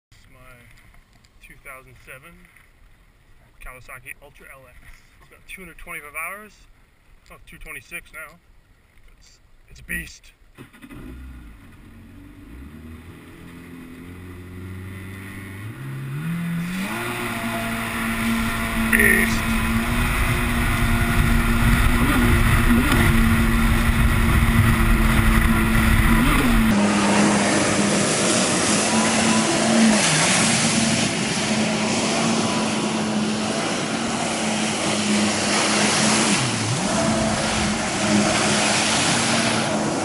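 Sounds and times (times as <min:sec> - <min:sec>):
jet ski engine running: 0:10.8 - 0:40.0
water spray rushing: 0:16.1 - 0:40.0
wind buffeting microphone: 0:17.0 - 0:26.8.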